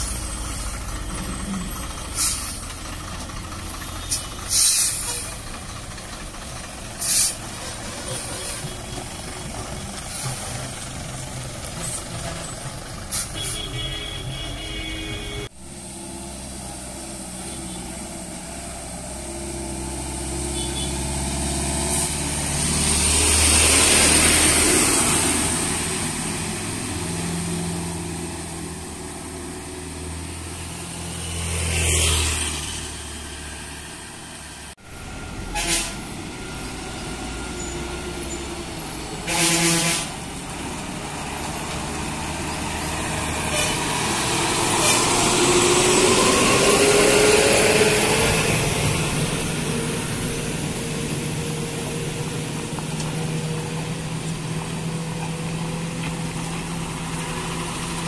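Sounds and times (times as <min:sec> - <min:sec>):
diesel lorry engines passing: 0:00.0 - 0:58.0
truck horn: 0:13.1 - 0:15.6, 0:20.4 - 0:21.1, 0:35.4 - 0:36.1, 0:39.2 - 0:40.2, 0:43.4 - 0:44.1.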